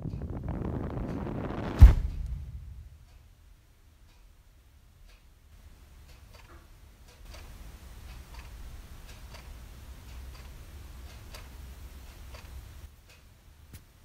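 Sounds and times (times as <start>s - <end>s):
wall clock ticking: 0.0s - 1.5s, 2.1s - 13.9s
low steady rumble: 0.0s - 13.7s.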